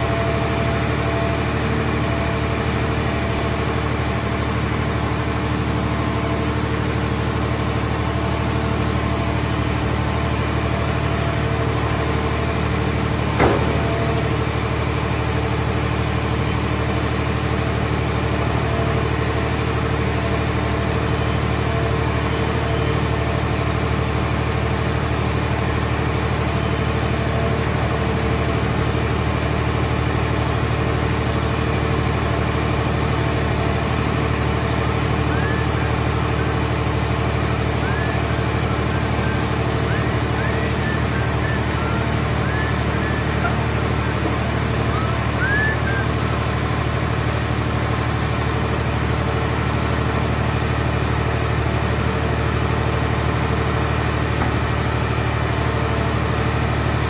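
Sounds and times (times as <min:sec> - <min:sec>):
hydraulic power unit droning: 0:00.0 - 0:57.0
sharp knock: 0:13.4 - 0:14.4.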